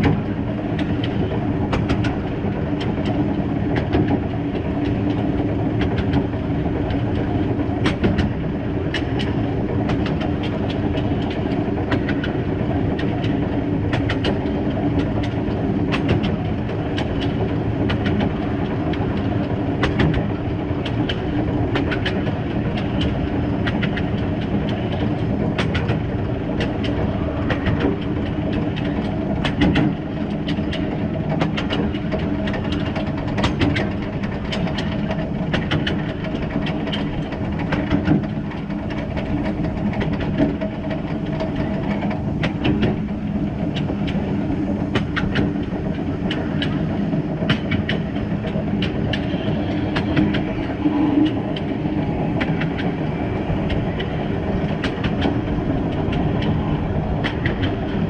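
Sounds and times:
steam locomotive running: 0.0 - 58.0
wheels clicking over rail joints: 0.0 - 58.0.

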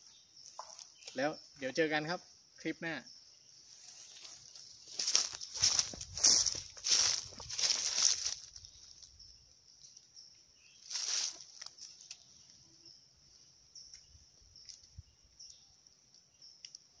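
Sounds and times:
insects droning: 0.0 - 17.0
rustling scuff: 3.8 - 8.4
faint ticks: 14.6 - 16.9.

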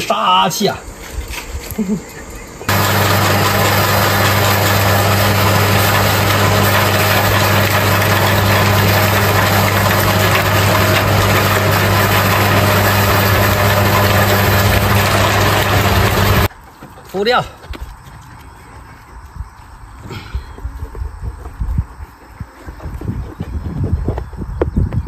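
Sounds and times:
electric meat grinder mincing fish: 2.7 - 16.5.

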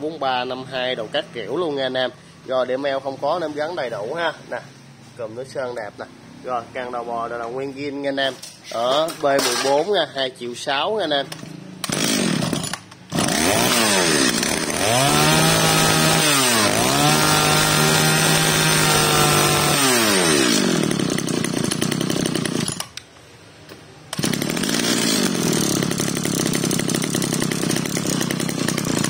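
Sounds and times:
brush cutter engine revving: 11.2 - 23.0, 24.1 - 29.0.

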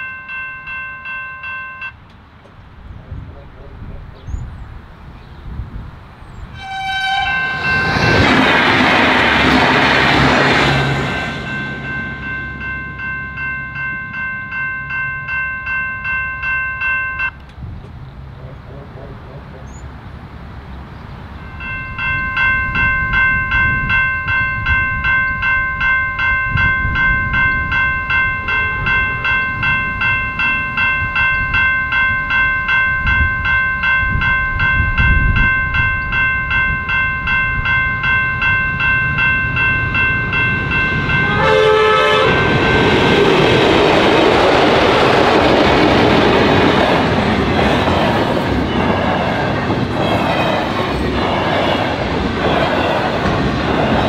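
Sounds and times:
level crossing bell ringing: 0.0 - 2.0, 7.1 - 8.2, 10.5 - 17.4, 21.4 - 46.8
train horn blast: 6.5 - 8.4, 41.1 - 43.3
train wheels rumbling and clattering: 7.2 - 13.9, 39.0 - 54.0.

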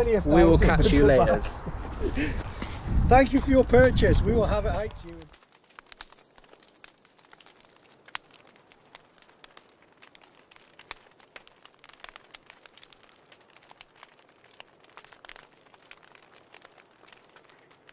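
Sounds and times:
faint crackling clicks and pops: 4.6 - 17.9.

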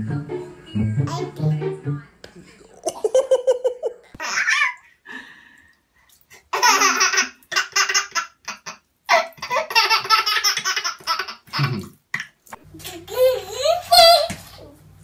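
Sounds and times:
baby laughing: 2.9 - 4.8, 6.5 - 14.5.

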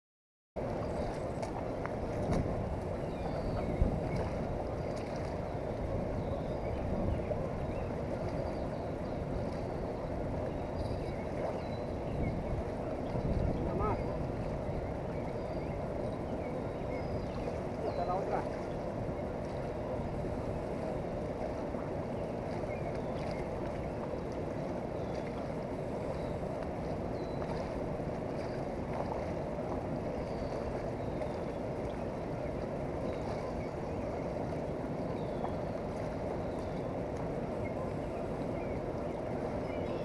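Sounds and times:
fast-flowing river: 0.6 - 40.0.

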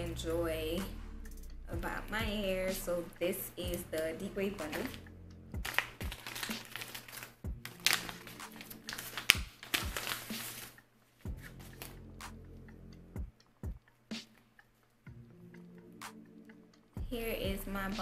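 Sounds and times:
plastic bag crinkling: 5.6 - 10.8.

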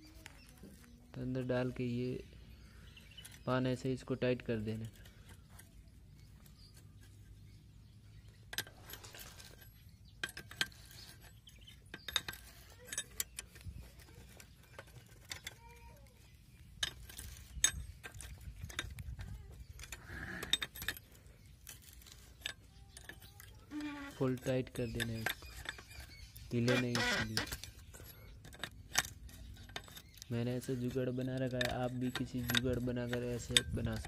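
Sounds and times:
spanner clinking on bolt: 8.2 - 34.0.

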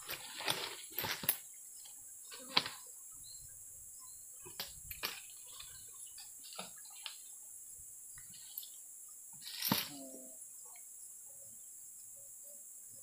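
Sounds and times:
knocks and rustles in undergrowth: 0.0 - 2.8, 4.4 - 7.2, 9.3 - 10.0
insects buzzing: 0.0 - 13.0.

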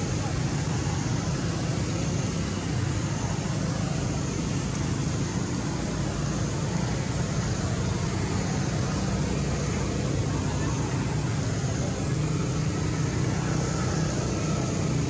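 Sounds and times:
steady low rumble with hiss: 0.0 - 15.0.

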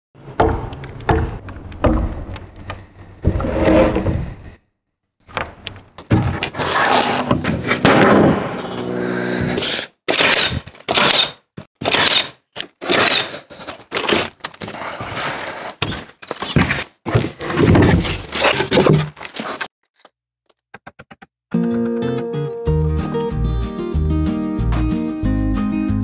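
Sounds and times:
plywood sheets thudding and scraping: 5.2 - 10.8, 12.8 - 19.7.

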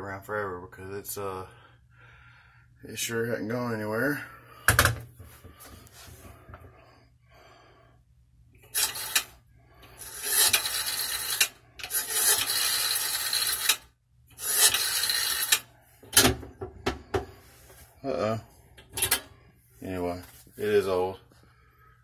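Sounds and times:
rotary dial whirring back: 8.7 - 15.8.

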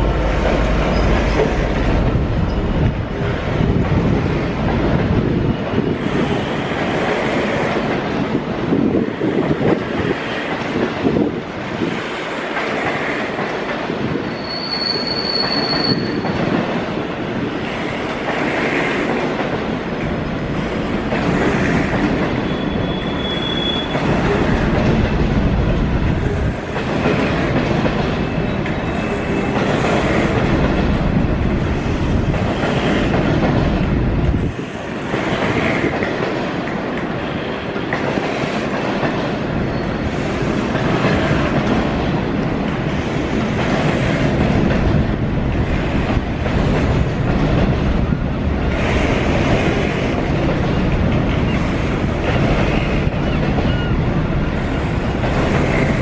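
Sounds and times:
train wheels clattering over rails: 0.0 - 56.0
high-pitched wheel squeals: 14.3 - 16.4, 22.4 - 24.0.

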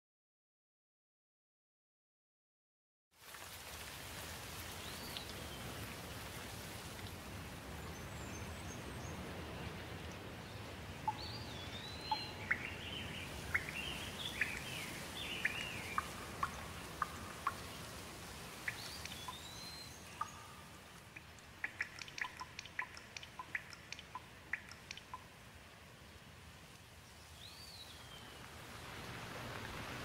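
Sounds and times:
steady rain: 3.1 - 30.0
water drops tapping: 21.1 - 25.3.

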